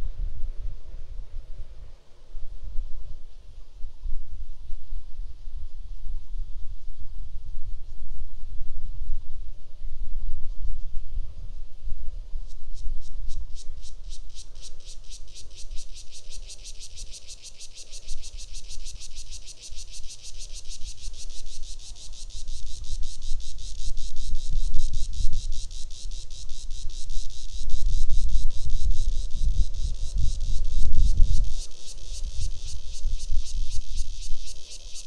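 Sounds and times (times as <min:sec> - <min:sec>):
insect trilling: 0:12.5 - 0:35.0.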